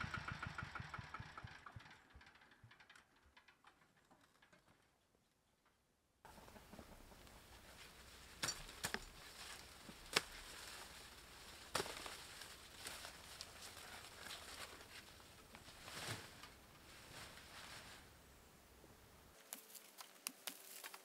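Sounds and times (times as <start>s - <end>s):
leaves rustling: 6.3s - 21.0s
blade chopping corn stalks: 7.6s - 17.4s.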